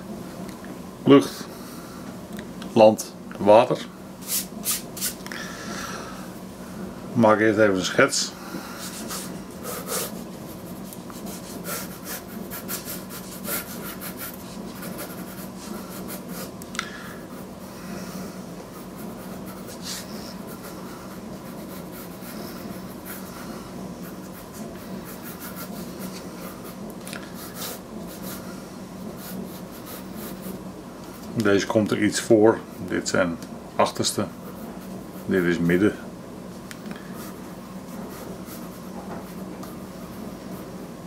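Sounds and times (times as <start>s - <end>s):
pencil scratching on paper: 8.9s - 16.6s, 18.7s - 30.6s, 34.4s - 35.6s, 37.1s - 40.8s.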